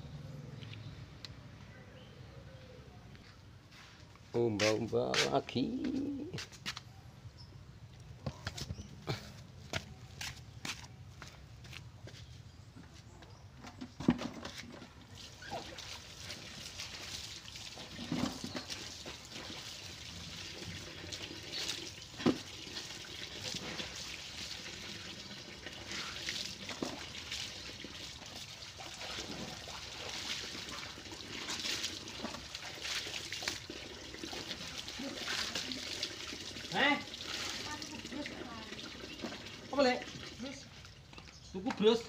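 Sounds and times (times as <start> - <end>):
hands washing clothes in water: 13.9 - 42.0
water pouring into a bucket: 14.8 - 41.1.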